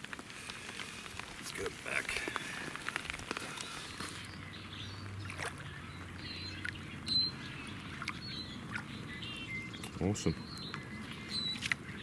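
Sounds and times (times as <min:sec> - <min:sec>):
water sloshing and lapping: 0:05.0 - 0:05.8, 0:07.8 - 0:09.0.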